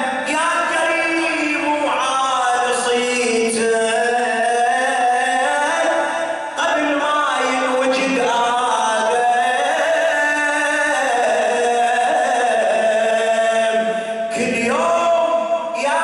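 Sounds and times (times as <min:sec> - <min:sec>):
person chanting into a microphone: 0:00.0 - 0:16.0.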